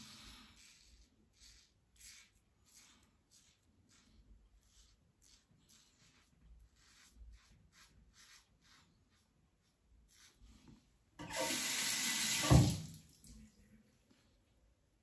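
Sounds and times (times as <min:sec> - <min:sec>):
tap water running into sink: 0:11.2 - 0:13.3
knock: 0:12.4 - 0:12.8.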